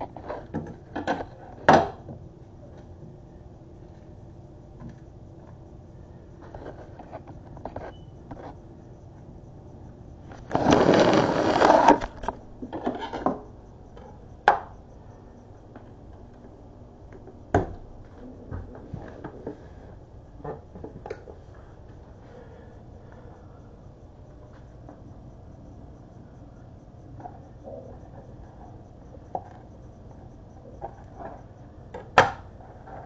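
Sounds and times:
camera scraping on counter: 10.4s - 13.2s.

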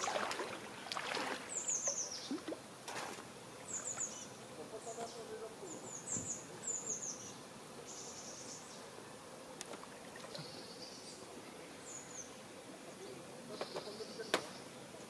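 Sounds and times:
small bird chirp: 1.5s - 2.5s.

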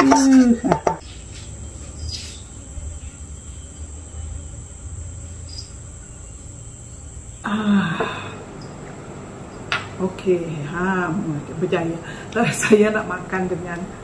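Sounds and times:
woman's voice: 0.0s - 1.0s, 7.5s - 8.4s, 9.9s - 14.0s
high-pitched whine: 0.0s - 14.0s
low hum: 0.0s - 14.0s.

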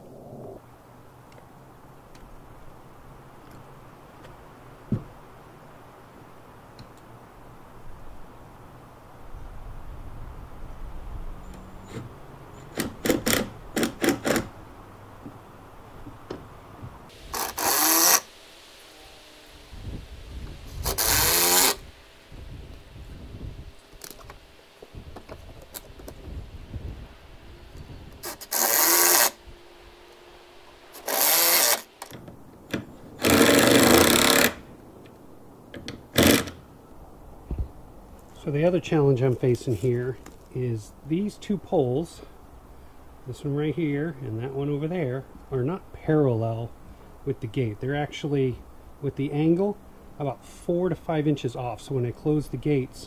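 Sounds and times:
cordless drill driving screws: 17.4s - 18.3s, 20.8s - 21.8s, 28.2s - 29.4s, 31.0s - 31.9s, 33.2s - 34.6s, 36.2s - 36.6s.

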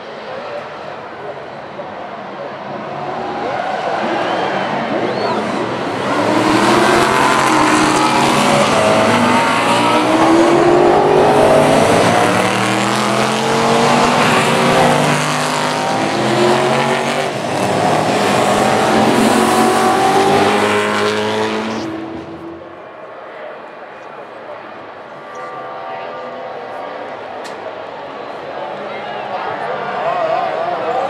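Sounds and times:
race car engines accelerating: 0.0s - 31.0s.

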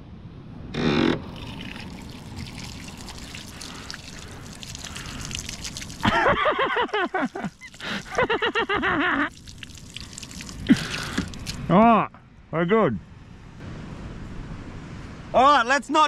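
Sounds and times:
water trickling and dripping: 1.3s - 11.7s.

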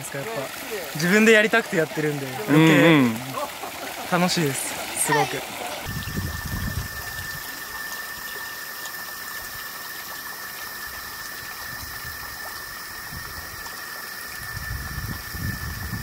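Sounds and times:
even hiss: 0.0s - 16.0s
constant high-pitched tone: 6.6s - 14.9s.

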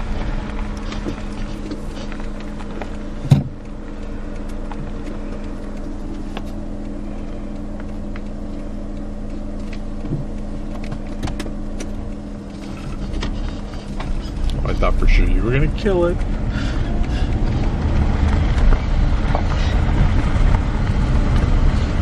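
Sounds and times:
car engine hum: 0.0s - 22.0s
road noise: 0.0s - 22.0s
sharp thump: 3.3s - 3.5s.

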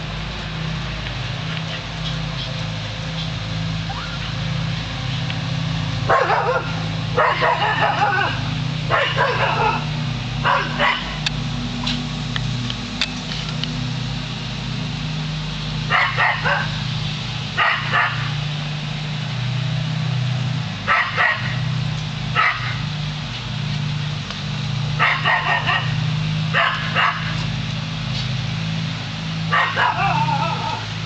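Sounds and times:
dog barking: 6.1s - 11.2s, 15.9s - 16.8s, 17.6s - 18.3s, 20.9s - 21.6s, 22.4s - 22.8s, 25.0s - 27.4s, 29.5s - 30.8s.

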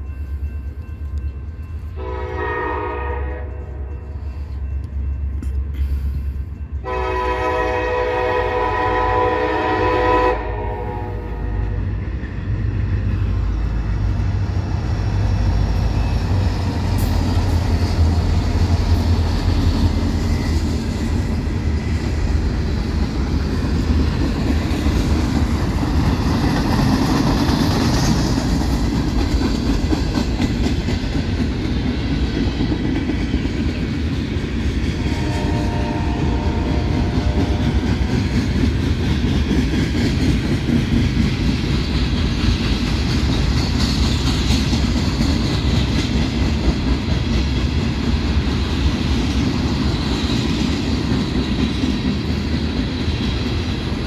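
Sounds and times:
train wheels rolling on rails: 0.0s - 54.0s
locomotive air horn blasts: 2.0s - 4.0s, 6.8s - 11.8s, 35.1s - 37.8s.

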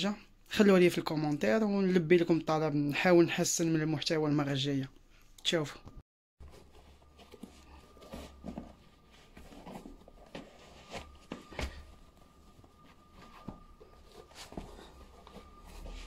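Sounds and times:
clothing rustling: 6.4s - 16.0s
sneakers knocking and scuffing: 7.3s - 16.0s.

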